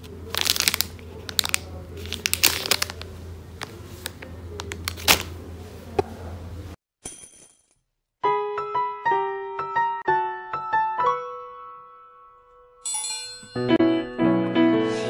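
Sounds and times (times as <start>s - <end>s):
foil bag crinkling: 0.0s - 5.4s.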